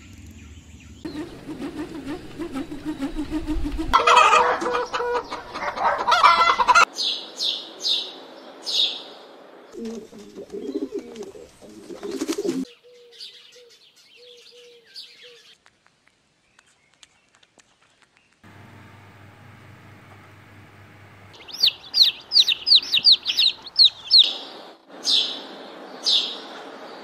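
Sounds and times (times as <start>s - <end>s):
doves cooing: 1.1s - 6.8s, 9.8s - 13.7s
chicken calling: 1.1s - 6.9s, 18.5s - 24.6s
high falling chirps: 21.2s - 24.7s.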